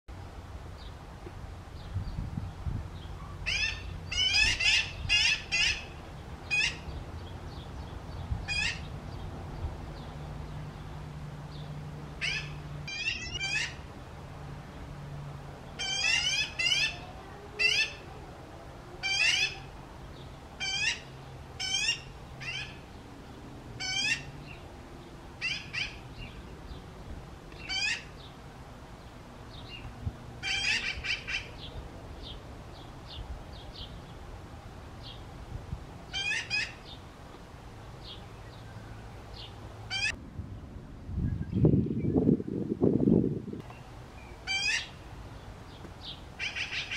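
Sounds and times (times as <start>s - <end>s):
magpie chick calling: 3.4s - 5.9s, 6.5s - 6.9s, 8.5s - 8.9s, 12.2s - 13.8s, 15.8s - 18.0s, 19.0s - 19.7s, 20.6s - 22.8s, 23.8s - 24.3s, 25.4s - 26.0s, 27.6s - 28.1s, 30.4s - 31.6s, 36.1s - 37.0s, 39.9s - 40.2s, 44.4s - 45.0s, 46.4s - 46.9s.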